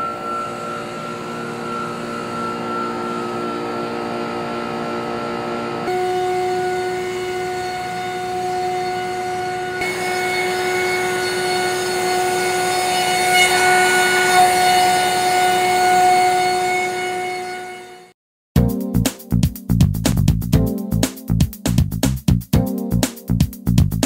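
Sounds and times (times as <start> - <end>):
hiss of cutting and dust extraction: 0.0 - 8.9
router spindle whining: 0.0 - 18.0.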